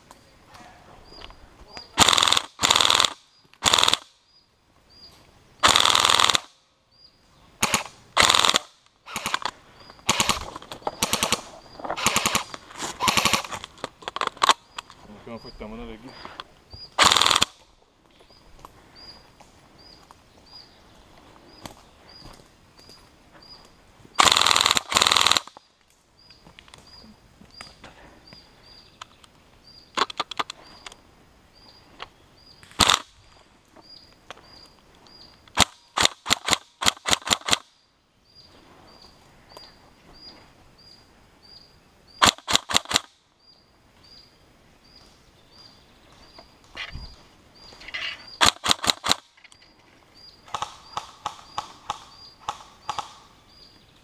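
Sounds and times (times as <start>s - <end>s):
airsoft guns firing: 2.0s - 4.2s, 5.6s - 6.6s, 7.6s - 13.6s, 17.0s - 17.6s, 24.2s - 25.6s, 32.8s - 33.1s, 35.5s - 37.7s, 42.2s - 43.1s, 48.4s - 49.3s, 50.5s - 53.4s.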